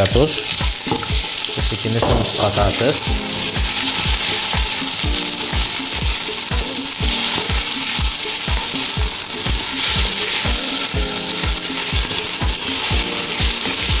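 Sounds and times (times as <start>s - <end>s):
background music with steady beat: 0.0s - 14.0s
vegetables sizzling in oil: 0.0s - 14.0s.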